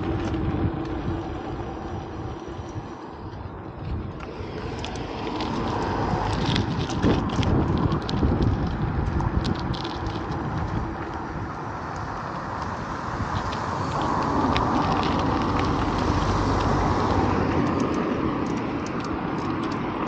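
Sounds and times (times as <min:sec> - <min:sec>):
traffic rumbling: 0:00.0 - 0:20.0
wind buffeting microphone: 0:00.0 - 0:20.0
small clicks: 0:11.8 - 0:20.0.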